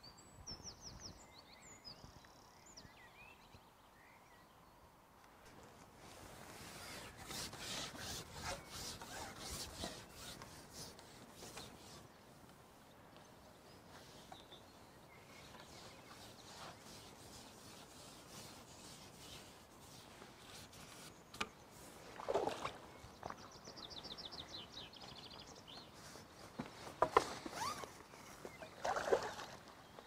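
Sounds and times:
birdsong: 0.0s - 4.8s, 6.7s - 30.0s.

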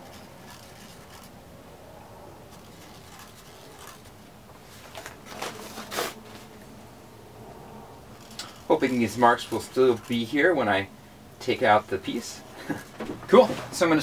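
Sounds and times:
scraping rustles of handling: 0.0s - 1.4s, 2.4s - 6.7s, 8.1s - 10.9s, 11.6s - 14.0s.

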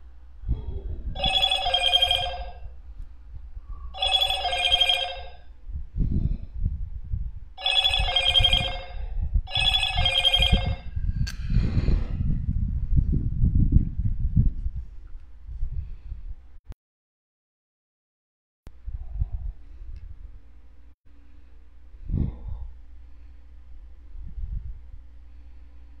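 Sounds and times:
telephone ringtone: 1.2s - 2.7s, 4.0s - 5.5s, 7.6s - 10.9s.

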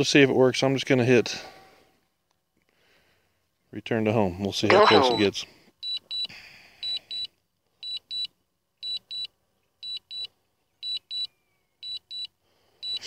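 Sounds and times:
remote controller double beeps: 4.7s - 5.3s.

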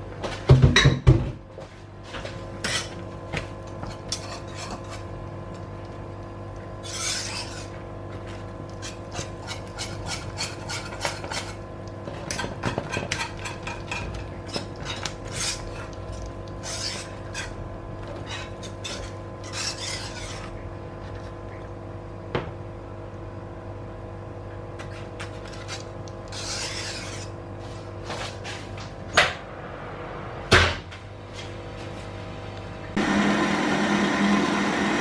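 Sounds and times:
steady hum: 1.5s - 35.0s
whisk scraping in steel pot: 2.6s - 3.1s, 3.8s - 5.7s, 6.6s - 21.4s, 24.8s - 27.9s.

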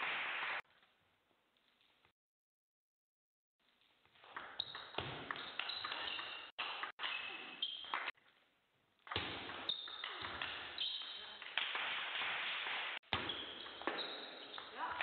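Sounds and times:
shoes squeaking on floor: 4.2s - 8.2s, 9.5s - 15.0s.

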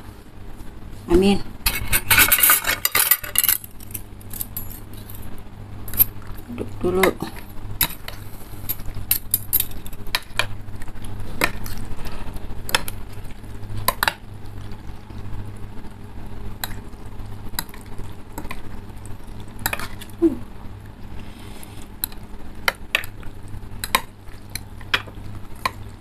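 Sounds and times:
utensils stirring soup: 1.6s - 14.2s, 16.6s - 20.2s, 21.1s - 26.0s
utensils clinking on bowls: 1.7s - 5.2s.

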